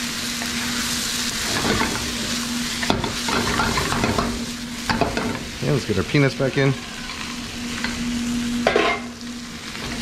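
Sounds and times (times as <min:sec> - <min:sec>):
food sizzling in a wok: 0:00.0 - 0:10.0
spatula scraping a wok: 0:00.4 - 0:05.0.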